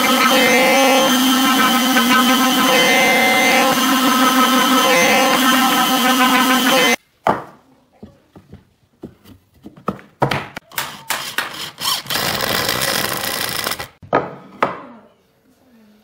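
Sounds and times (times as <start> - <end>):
cordless drill driving screw: 0.0 - 7.0, 11.5 - 14.0.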